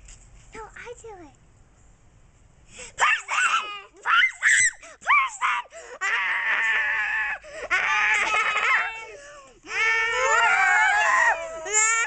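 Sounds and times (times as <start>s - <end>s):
children shrieking and squealing: 3.0s - 12.0s.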